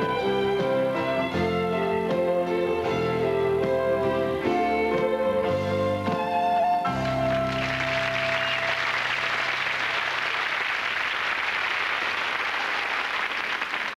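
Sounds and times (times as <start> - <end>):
audience applause: 6.9 - 14.0.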